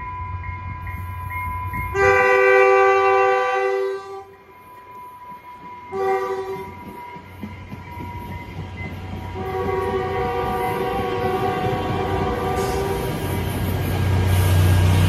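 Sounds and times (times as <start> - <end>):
moving train rumble: 0.0 - 15.0
train horn blasts: 1.9 - 4.4, 5.8 - 7.0, 9.2 - 13.5.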